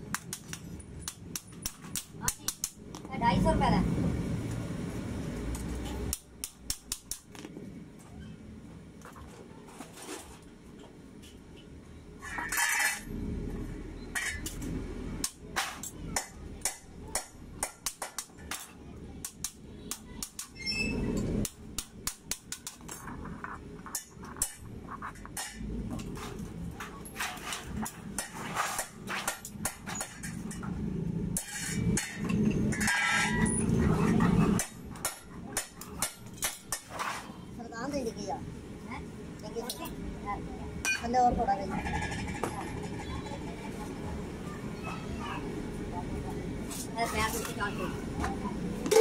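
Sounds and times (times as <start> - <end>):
hammer tapping sheet metal: 0.1 - 2.9, 6.1 - 7.4, 21.4 - 23.0.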